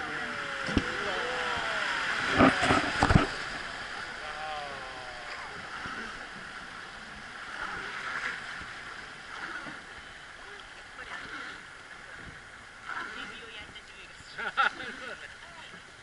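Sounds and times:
faint voices: 0:00.0 - 0:06.4
river water rushing along boat: 0:00.0 - 0:16.0.

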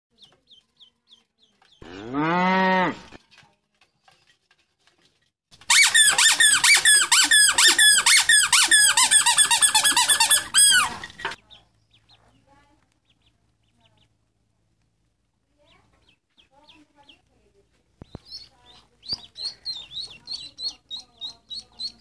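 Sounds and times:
squeaky toy squeaking: 0:05.6 - 0:11.4
duckling peeps: 0:18.0 - 0:22.0.

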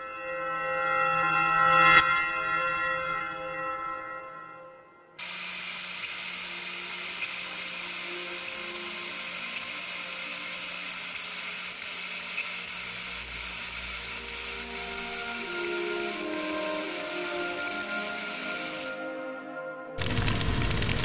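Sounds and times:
electronic static hiss: 0:05.2 - 0:19.0.

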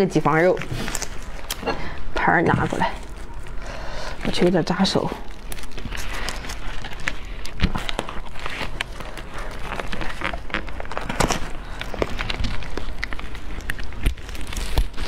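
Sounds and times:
plastic gloves rustling: 0:00.0 - 0:15.0
husk cracking open: 0:05.2 - 0:15.0.

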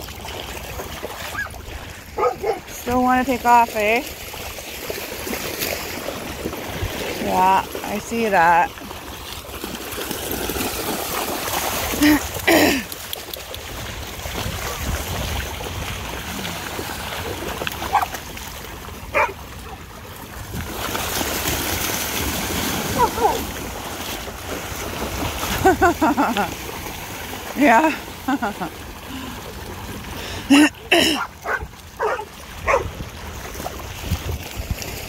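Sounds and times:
water splashing: 0:00.0 - 0:35.0
dogs vocalizing: 0:01.3 - 0:02.7, 0:19.1 - 0:19.4, 0:22.9 - 0:23.5, 0:30.5 - 0:32.9.

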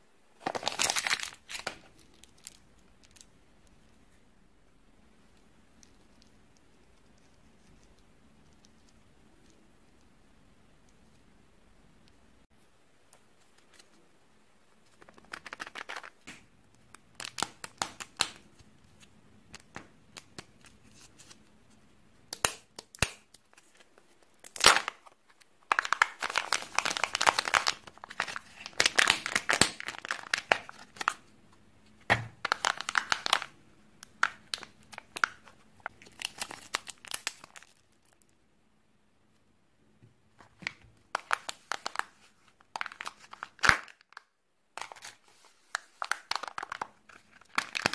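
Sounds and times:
foil wrapper crinkling and tearing: 0:00.4 - 0:03.2, 0:15.0 - 0:16.2, 0:24.4 - 0:31.2, 0:32.4 - 0:33.5, 0:34.1 - 0:38.2, 0:41.1 - 0:47.9.

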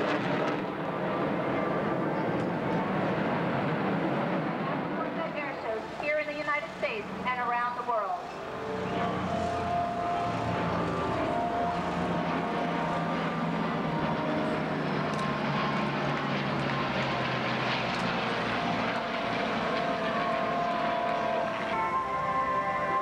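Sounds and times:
aircraft formation droning past: 0:00.0 - 0:23.0
propeller hum: 0:00.0 - 0:23.0
tone sliding down in pitch: 0:08.3 - 0:15.0.

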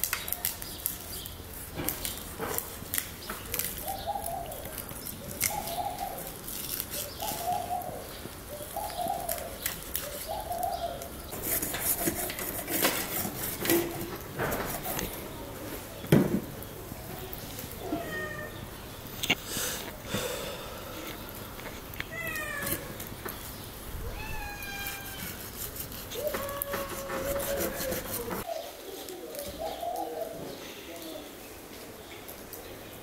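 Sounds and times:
dove cooing: 0:03.7 - 0:11.2, 0:26.1 - 0:31.2.

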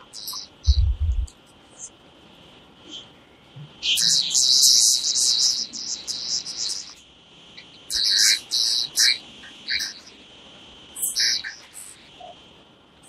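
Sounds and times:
birds chirping: 0:00.0 - 0:01.9, 0:03.8 - 0:10.2, 0:11.0 - 0:12.4.

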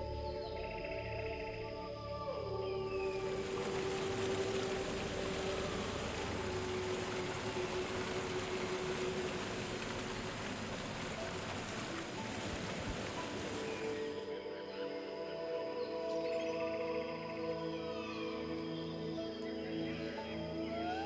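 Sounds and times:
ambient background music: 0:00.0 - 0:21.0
rain-like hiss: 0:03.1 - 0:14.3.

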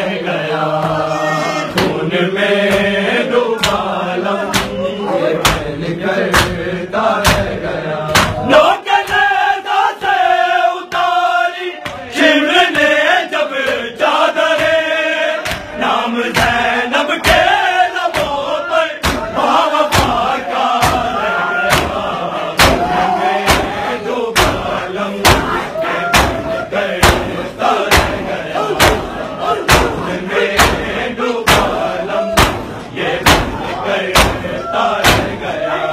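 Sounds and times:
men chanting in unison: 0:00.0 - 0:35.9
hands slapping chests: 0:03.6 - 0:03.9, 0:04.5 - 0:04.8, 0:06.3 - 0:06.6, 0:07.2 - 0:09.3, 0:15.4 - 0:16.6, 0:19.0 - 0:23.8, 0:24.4 - 0:31.8, 0:32.4 - 0:35.4.

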